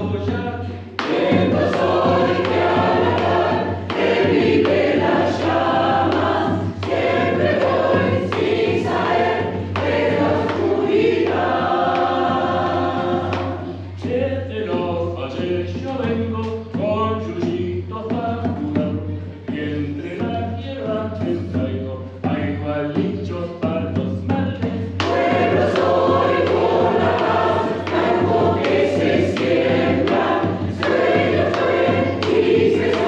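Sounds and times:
choir singing: 0.9s - 15.5s, 25.0s - 33.0s.

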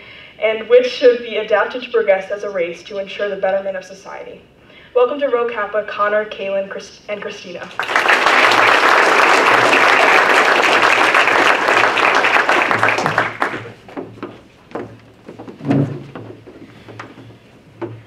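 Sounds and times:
audience applauding: 7.7s - 13.8s
footsteps on wooden stage: 12.4s - 18.0s.

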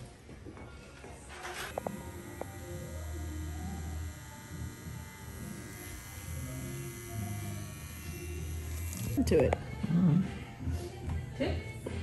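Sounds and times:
tattoo machine buzzing: 1.7s - 9.2s.

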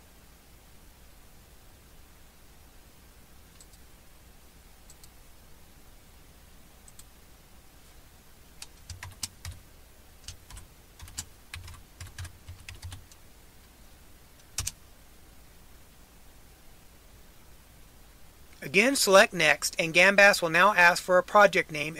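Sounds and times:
keyboard typing: 3.5s - 3.9s, 8.6s - 9.6s, 10.2s - 13.2s, 14.4s - 14.8s.

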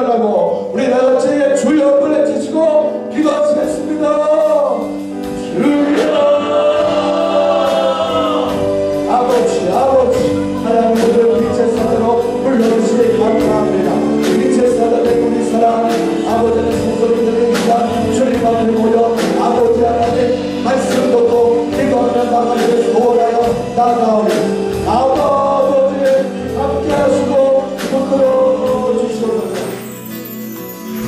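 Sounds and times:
man singing into microphone: 0.8s - 30.0s
band with drum beat: 3.5s - 30.1s
voices singing along: 5.4s - 23.6s.

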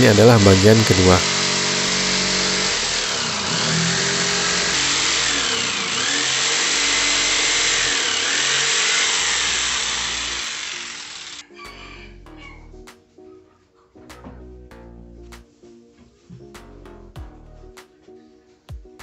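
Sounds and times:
jigsaw cutting plywood: 0.0s - 11.4s.

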